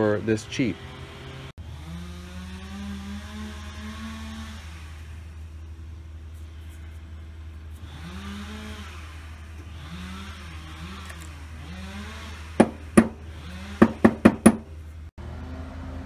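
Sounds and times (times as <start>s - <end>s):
metal tools knocking on wood: 12.6s - 13.2s, 13.8s - 14.7s.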